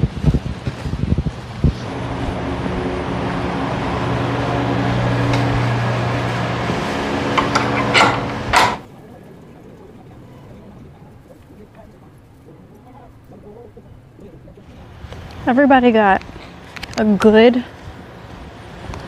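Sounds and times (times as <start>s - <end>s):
motor humming: 1.6s - 8.9s
sharp clicks and knocks: 5.1s - 8.9s.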